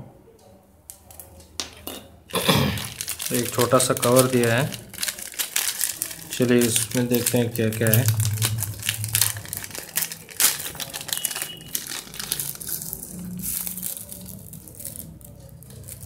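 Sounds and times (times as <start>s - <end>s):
plastic bag crinkling: 1.0s - 16.0s.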